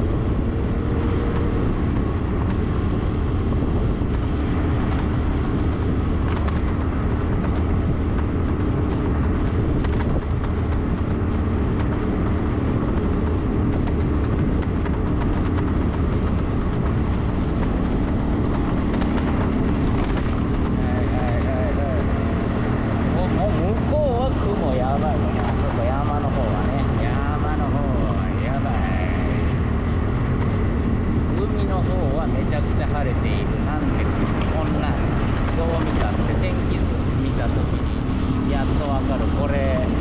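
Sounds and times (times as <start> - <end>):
motor scooter engine humming: 0.0 - 31.4
road and wind noise: 0.0 - 40.0.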